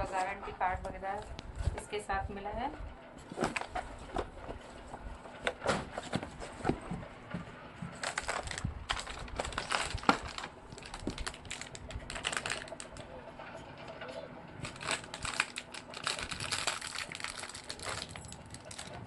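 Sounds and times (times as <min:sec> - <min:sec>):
paper rustling: 0:07.9 - 0:13.0, 0:14.6 - 0:19.0.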